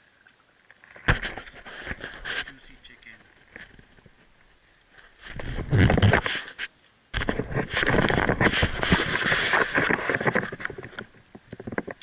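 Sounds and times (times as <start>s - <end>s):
toboggan scraping over snow: 5.2s - 6.6s, 7.2s - 10.7s.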